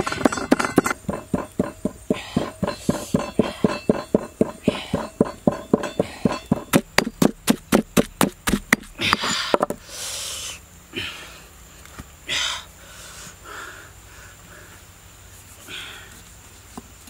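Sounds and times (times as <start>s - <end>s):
pestle pounding in stone mortar: 0.0s - 9.8s
soft noisy sounds: 0.0s - 17.0s.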